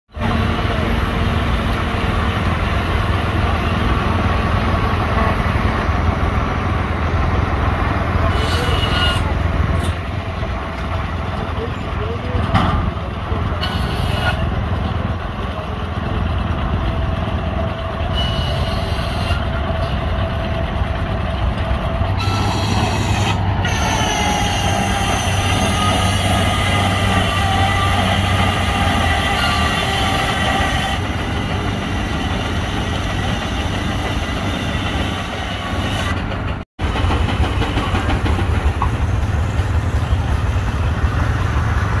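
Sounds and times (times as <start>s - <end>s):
sawmill running: 0.2s - 42.0s.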